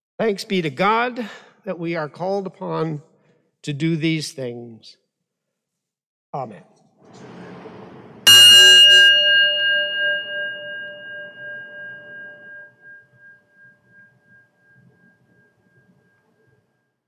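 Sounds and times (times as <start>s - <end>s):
singing bowl ringing: 8.3s - 17.0s.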